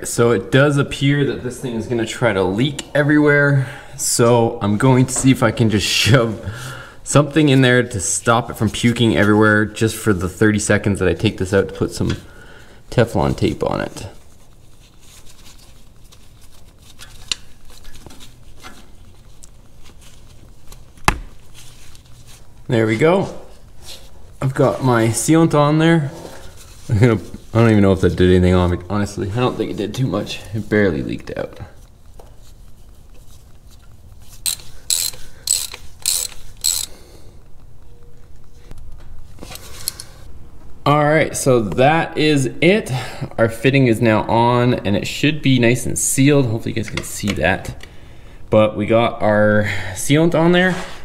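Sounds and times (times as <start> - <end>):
gloved hands rustling: 4.6 - 40.8
ratchet wrench clicking: 34.4 - 36.9.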